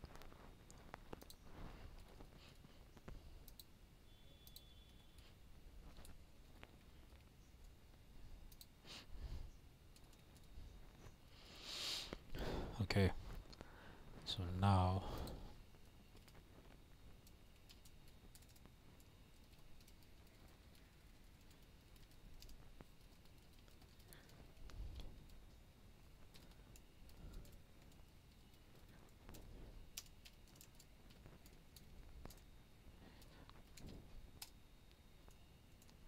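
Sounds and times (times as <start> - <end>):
computer keyboard typing: 0.0 - 3.7, 4.3 - 5.3, 8.4 - 8.8, 9.9 - 10.6, 17.1 - 25.6, 26.2 - 32.5.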